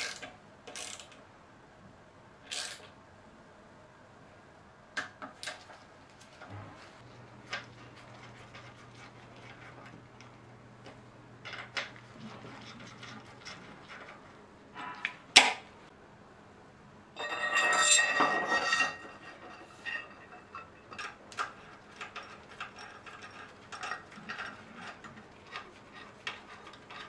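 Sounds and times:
metallic rattling and scraping: 0:11.5 - 0:15.3, 0:17.2 - 0:27.0.

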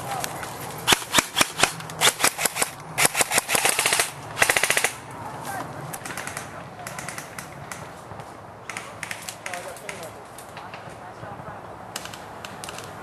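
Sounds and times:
airsoft guns firing: 0:00.9 - 0:05.0, 0:06.0 - 0:07.8, 0:08.7 - 0:10.1.

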